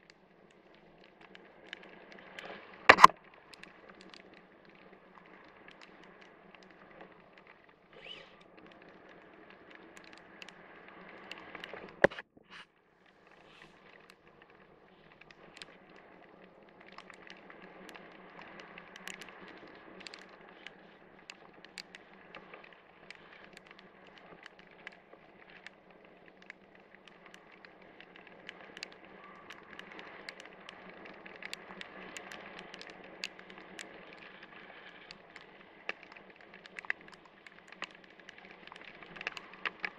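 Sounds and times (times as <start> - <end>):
raindrops ticking on camera: 0.0 - 12.3, 12.9 - 39.9
loud click: 2.9 - 3.1.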